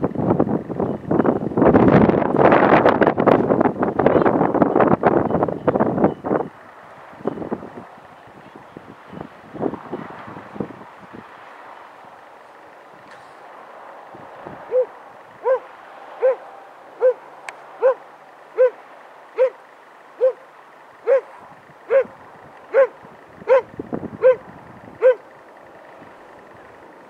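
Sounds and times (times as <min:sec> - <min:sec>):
dog barking: 0:14.7 - 0:18.8, 0:19.4 - 0:19.6, 0:20.2 - 0:24.4, 0:25.0 - 0:25.3.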